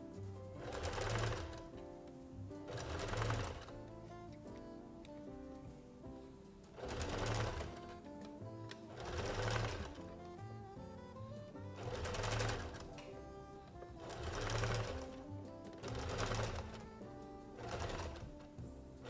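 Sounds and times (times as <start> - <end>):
soft background music: 0.0 - 19.0
sewing machine stitching: 0.6 - 1.8, 2.5 - 3.9, 6.7 - 8.0, 8.7 - 10.3, 11.8 - 18.6.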